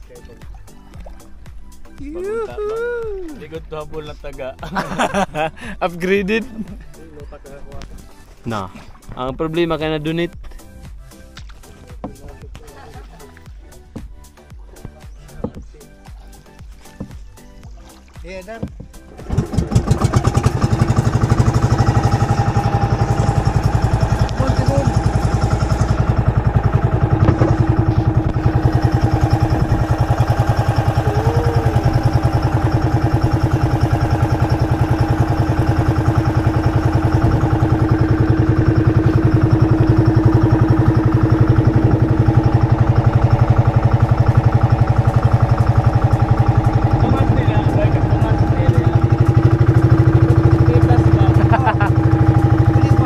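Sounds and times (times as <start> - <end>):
small boat engine running: 0.0 - 53.0.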